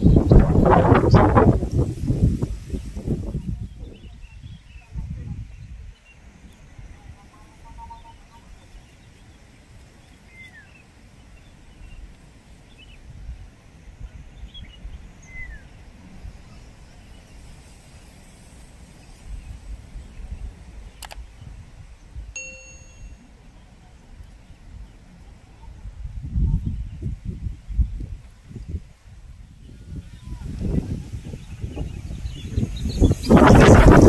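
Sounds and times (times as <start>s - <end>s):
wind buffeting microphone: 0.0s - 22.4s, 24.0s - 34.0s
sharp click: 21.0s - 21.2s
short ding: 22.4s - 23.3s
faint high chirps: 22.4s - 23.5s.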